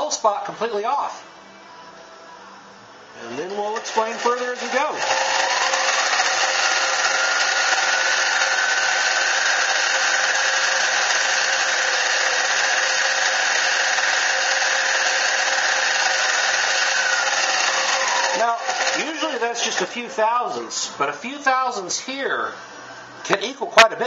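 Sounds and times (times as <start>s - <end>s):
lathe motor whine: 3.3s - 21.8s.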